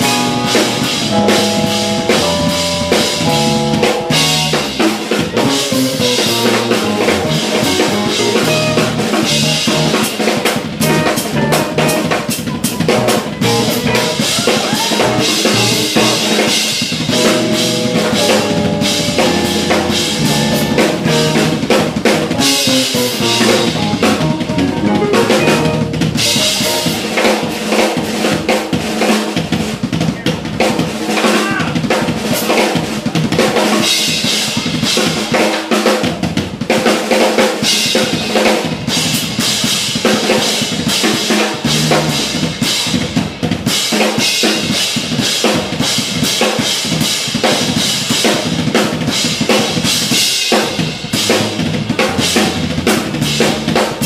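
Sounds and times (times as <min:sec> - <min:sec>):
fast drum kit hits: 0:00.0 - 0:54.0
jazz-fusion band playing: 0:00.0 - 0:54.0.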